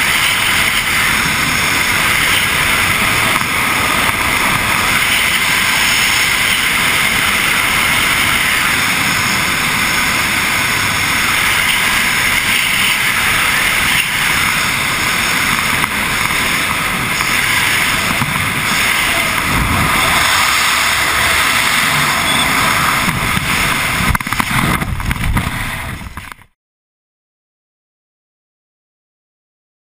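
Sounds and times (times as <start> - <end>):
wind rushing against microphone: 0.0 - 26.4.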